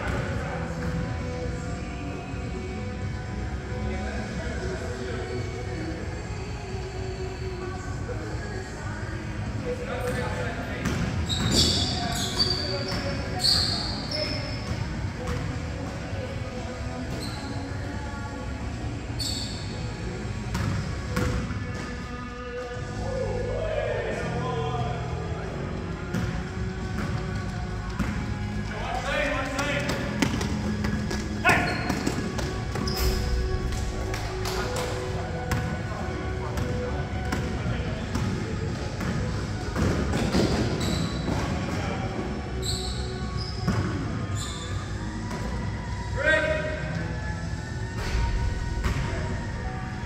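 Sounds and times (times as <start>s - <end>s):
music with singing: 0.0s - 50.0s
sneakers squeaking on hardwood: 10.8s - 15.5s, 16.9s - 17.8s, 19.2s - 19.8s, 29.6s - 33.5s, 39.8s - 41.8s, 42.6s - 45.6s
basketball bouncing on gym court: 26.1s - 28.4s.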